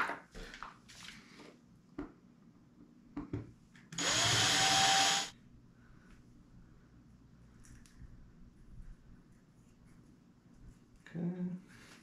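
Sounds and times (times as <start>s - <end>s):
power tool motor whining: 4.0s - 5.3s.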